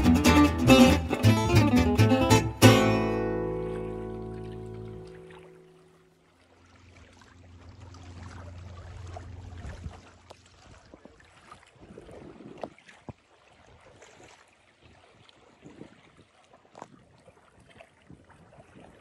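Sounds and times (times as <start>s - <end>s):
low steady hum: 0.0s - 10.9s
lake water lapping: 2.6s - 19.0s
wind on microphone: 11.8s - 13.2s, 15.6s - 19.0s.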